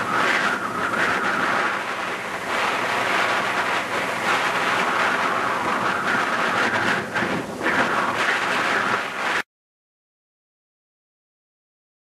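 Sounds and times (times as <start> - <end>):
boat motor running: 0.0 - 9.4
water rushing past hull: 0.0 - 9.4
wind on microphone: 0.0 - 9.4.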